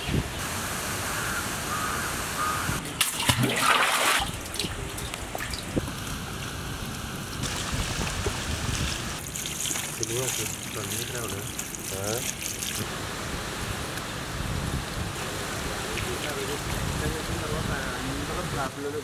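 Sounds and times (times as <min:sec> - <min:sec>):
bucket splashing in a well: 0:02.8 - 0:05.8, 0:07.4 - 0:12.8
water pouring over vegetables: 0:09.2 - 0:12.8.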